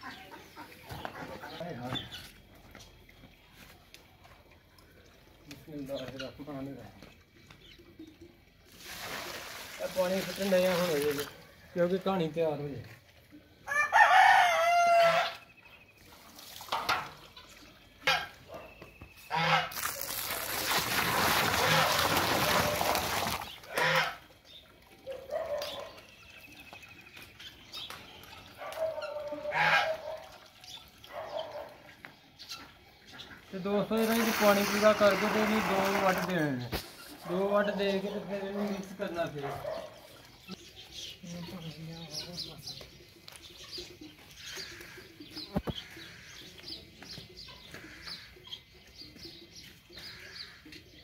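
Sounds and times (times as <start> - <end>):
small birds chirping: 0.0 - 4.2, 23.4 - 51.0
water splashing from steel bowl: 3.0 - 13.3, 16.0 - 18.4, 19.4 - 31.9, 33.8 - 41.6.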